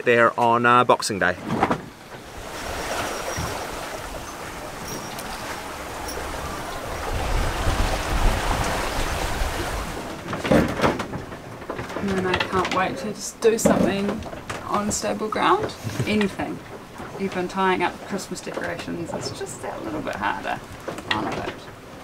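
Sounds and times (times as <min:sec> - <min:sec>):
wind and sea rushing: 0:00.0 - 0:22.0
wind gust buffeting microphone: 0:01.9 - 0:10.3.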